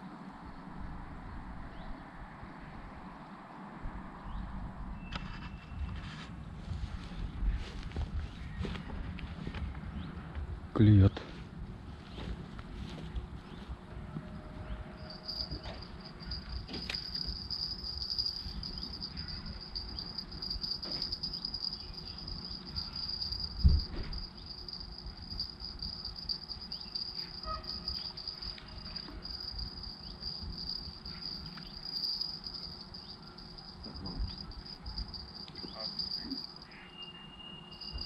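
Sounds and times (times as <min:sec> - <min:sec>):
crickets chirring: 0:14.3 - 0:38.0.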